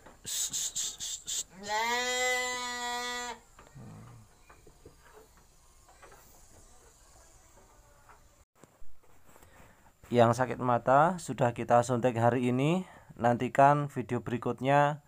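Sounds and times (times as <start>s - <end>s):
sheep bleating: 1.5s - 4.2s.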